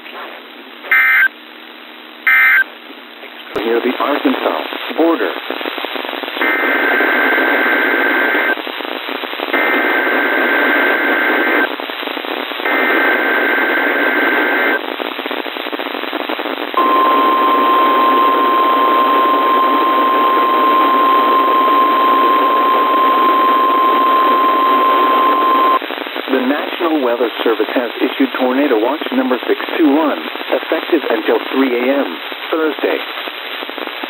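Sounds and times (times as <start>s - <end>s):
radio static hiss: 0.0s - 34.0s
data tone bursts: 0.9s - 1.3s, 2.3s - 2.7s, 16.8s - 25.8s
steady warning alarm tone: 0.9s - 1.3s, 2.3s - 2.6s, 16.8s - 25.8s.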